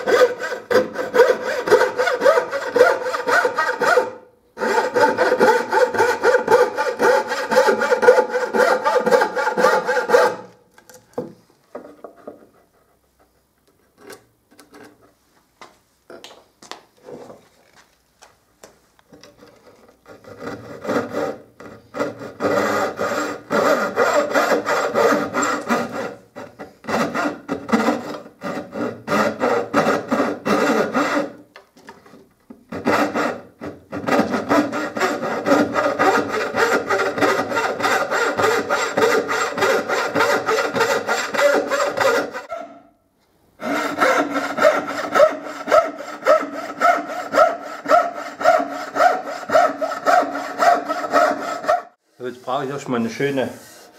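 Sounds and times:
hand saw cutting wood: 0:00.0 - 0:10.6, 0:19.3 - 0:31.4, 0:32.7 - 0:42.7, 0:43.6 - 0:53.9.

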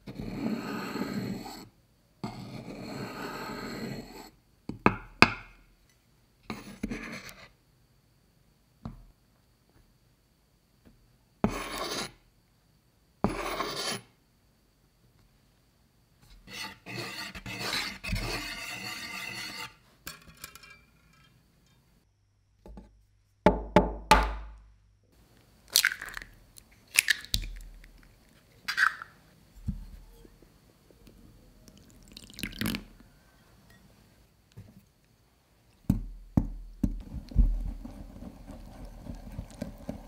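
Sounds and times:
spoon scraping flour: 0:00.0 - 0:01.7, 0:13.3 - 0:14.1, 0:16.3 - 0:19.9, 0:37.0 - 0:40.0
eggshells crackling: 0:25.6 - 0:29.2.

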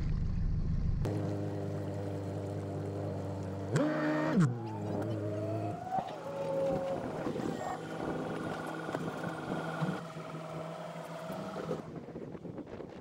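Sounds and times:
engine humming: 0:00.0 - 0:12.6
low engine tone: 0:00.0 - 0:13.0
drawn-out moaning tones: 0:01.1 - 0:11.9.

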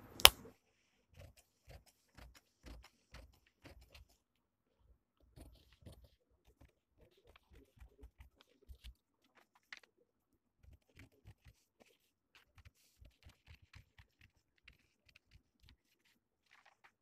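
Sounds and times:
scissors snipping paper: 0:00.0 - 0:00.4.

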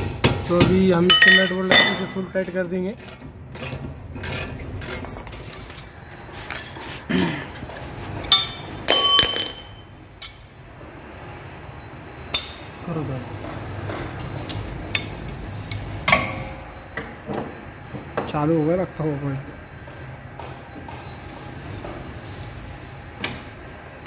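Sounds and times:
metal tools clinking: 0:01.1 - 0:02.6, 0:04.4 - 0:07.1, 0:08.2 - 0:10.5.

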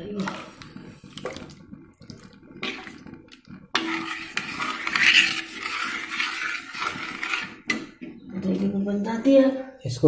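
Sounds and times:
liquid curry sloshing: 0:00.3 - 0:07.7.

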